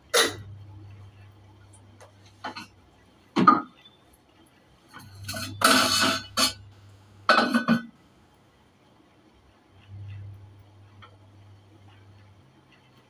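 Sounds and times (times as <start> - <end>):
steel utensils clattering: 5.0 - 6.7.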